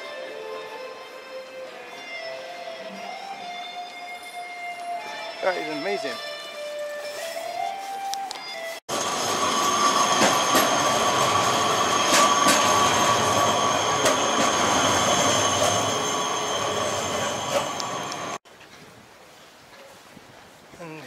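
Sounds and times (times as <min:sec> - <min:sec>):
tram rumble: 0:08.9 - 0:18.4
tram wheels squealing on rails: 0:08.9 - 0:18.4.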